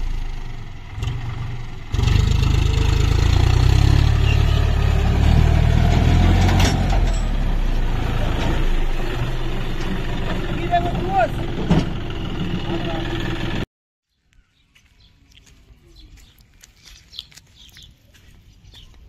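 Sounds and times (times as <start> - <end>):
tractor diesel engine running: 0.0 - 13.7.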